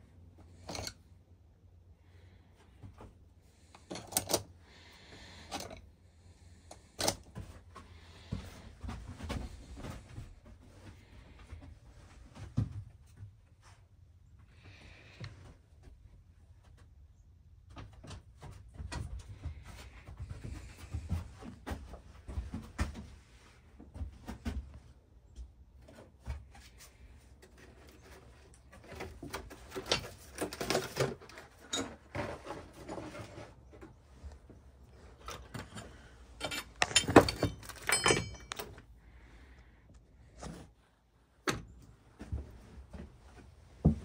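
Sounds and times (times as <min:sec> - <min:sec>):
tools and metal parts clanking: 0:00.5 - 0:01.1, 0:03.7 - 0:04.5, 0:05.4 - 0:05.8, 0:27.4 - 0:34.3, 0:34.9 - 0:39.0.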